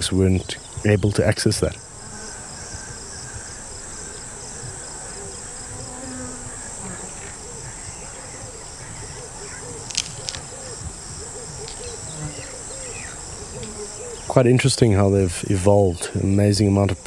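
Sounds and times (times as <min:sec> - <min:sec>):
high-pitched insect drone: 0:01.8 - 0:14.4
rapid pulsing chirp: 0:01.8 - 0:14.5.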